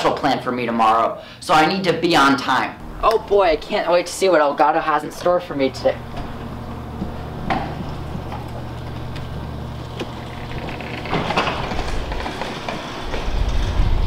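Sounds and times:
garage door motor humming: 0:00.0 - 0:14.0
garage door rumbling: 0:02.8 - 0:14.0.

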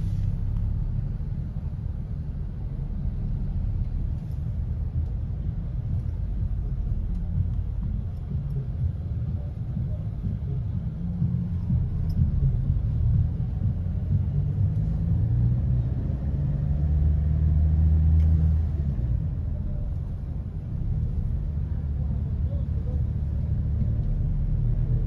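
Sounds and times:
car engine creeping past: 0:11.0 - 0:25.0.

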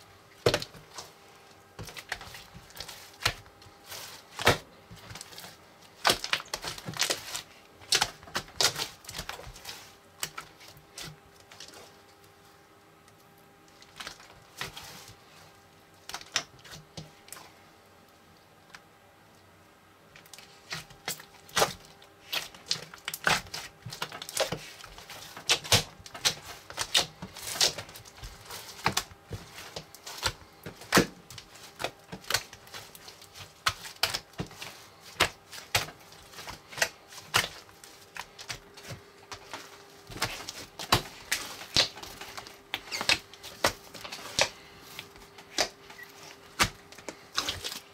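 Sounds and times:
foam slime crackling and popping: 0:01.8 - 0:11.8, 0:20.2 - 0:47.9.

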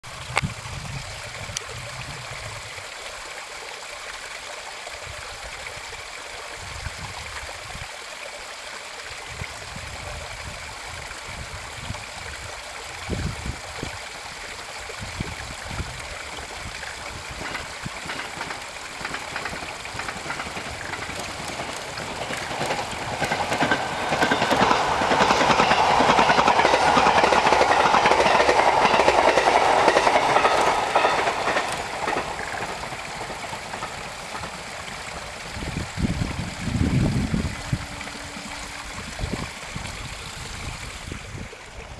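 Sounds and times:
electric train running noise: 0:16.2 - 0:35.8.

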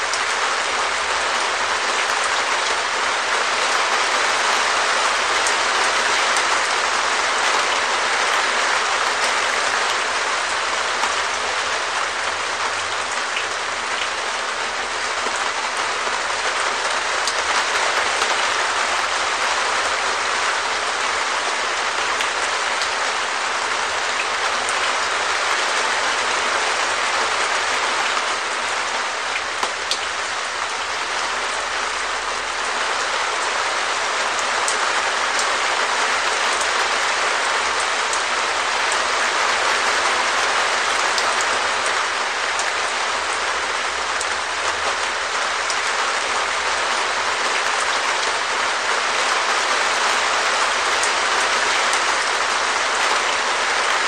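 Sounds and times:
rain on a plastic roof: 0:00.0 - 0:54.0.

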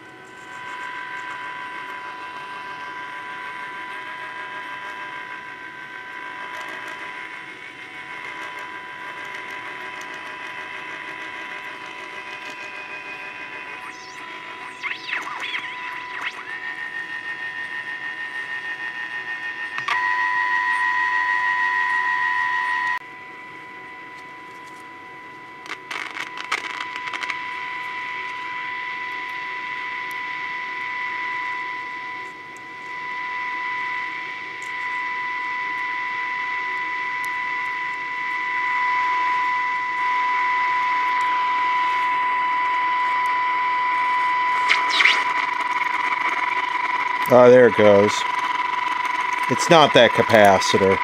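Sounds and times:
radio crackles and clicks: 0:09.9 - 0:16.7, 0:25.6 - 0:27.4, 0:44.5 - 0:51.0
radio high whistle: 0:11.8 - 0:23.0, 0:25.8 - 0:51.0.

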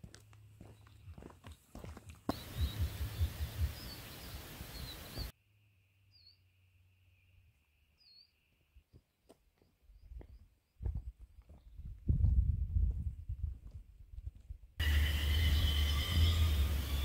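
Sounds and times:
small birds chirping: 0:00.5 - 0:05.3
wind rumbling on microphone: 0:02.3 - 0:05.3, 0:10.1 - 0:14.8
faint steady high trill: 0:14.8 - 0:17.0.

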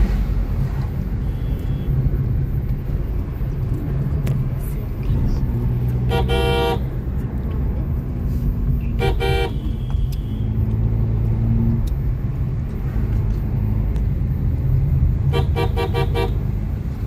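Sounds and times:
car driving rumble in cabin: 0:00.0 - 0:17.0
vehicle horn: 0:01.2 - 0:02.0, 0:06.0 - 0:06.9, 0:08.8 - 0:10.7, 0:15.3 - 0:16.5.

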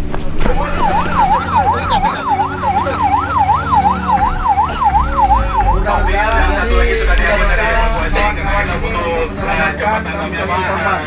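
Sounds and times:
vehicle engine rumbling: 0:00.0 - 0:11.0
emergency siren yelping: 0:00.4 - 0:11.0.

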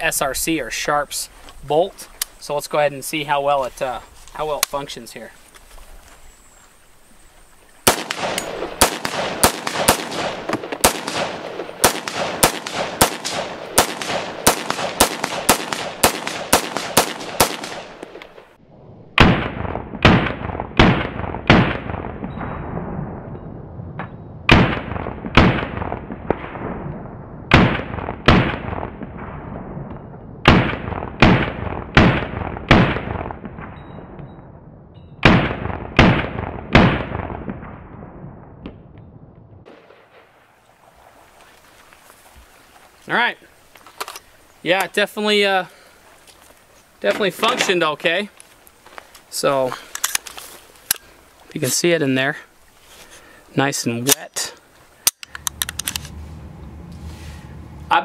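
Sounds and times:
rifle shots with echo: 0:07.8 - 0:18.6, 0:19.2 - 0:23.4, 0:24.5 - 0:26.9, 0:27.5 - 0:29.7, 0:30.4 - 0:34.2, 0:35.2 - 0:38.2
rapid rifle fire: 0:07.9 - 0:18.0.

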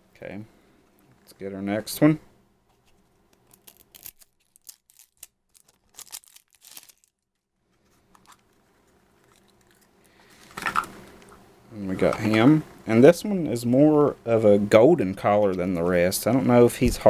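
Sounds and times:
plastic wrapping crinkling: 0:02.9 - 0:08.6.

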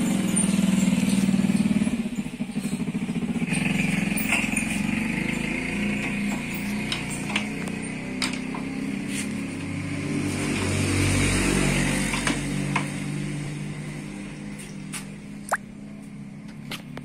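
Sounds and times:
motorcycle engine running: 0:00.0 - 0:10.2.

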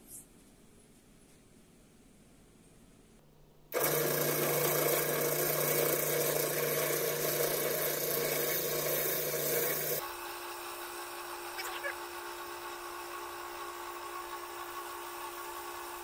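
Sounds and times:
electric drill boring into wood: 0:03.8 - 0:16.0.

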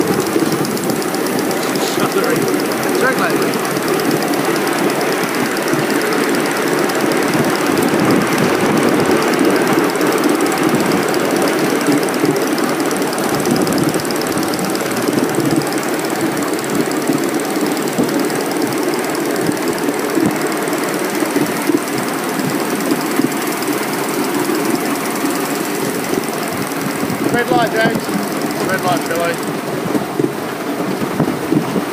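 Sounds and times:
steam locomotive chuffing: 0:00.0 - 0:31.9
wheels rattling on rails: 0:00.0 - 0:31.9.

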